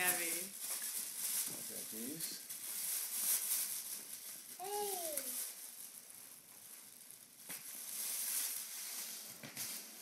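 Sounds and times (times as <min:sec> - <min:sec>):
plastic bag rustling: 0:00.0 - 0:10.0.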